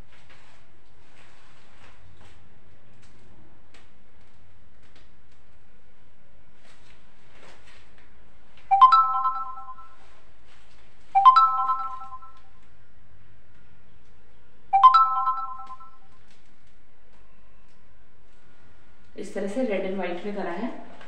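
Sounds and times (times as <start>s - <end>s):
faint steady hum: 0.0s - 21.0s
electronic notification chime: 8.7s - 10.0s, 11.2s - 12.4s, 14.8s - 16.0s.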